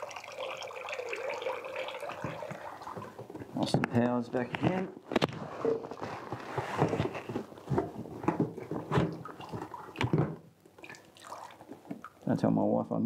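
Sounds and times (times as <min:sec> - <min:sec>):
water pouring into plastic bucket: 0:00.0 - 0:03.7, 0:07.7 - 0:12.3.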